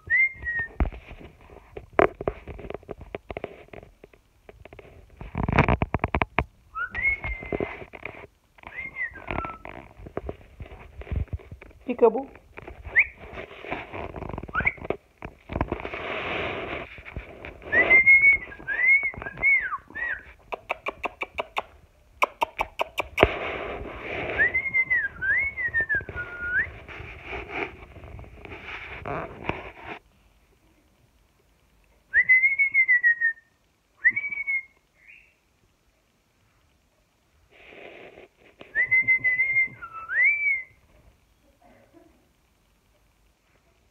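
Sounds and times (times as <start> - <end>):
breathy rustle: 12.4 - 14.6, 15.3 - 19.0, 23.0 - 30.3, 37.4 - 38.8
rapid sharp clicks: 20.4 - 23.4
person whistling a tune: 24.4 - 26.7, 34.0 - 34.8, 38.7 - 40.8
cockatiel whistling: 34.0 - 35.4.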